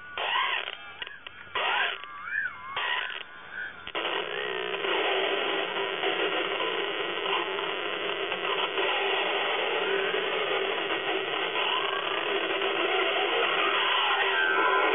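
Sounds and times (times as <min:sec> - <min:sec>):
grainy mechanical electronic noise: 0:00.0 - 0:14.9.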